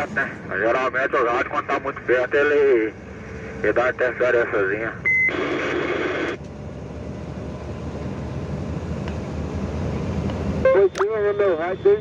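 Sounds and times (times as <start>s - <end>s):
truck engine and road noise: 0.0s - 12.0s
radio static hiss: 3.6s - 6.4s.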